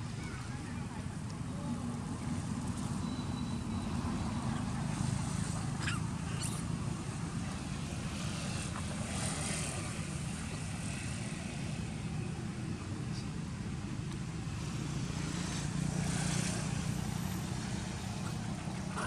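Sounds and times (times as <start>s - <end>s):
macaques squeaking: 3.7s - 6.8s.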